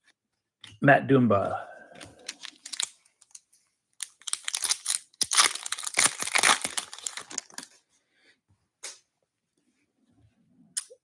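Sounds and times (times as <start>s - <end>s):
wrapper crinkling: 2.0s - 3.4s, 4.0s - 7.8s
cards being handled: 2.0s - 7.8s.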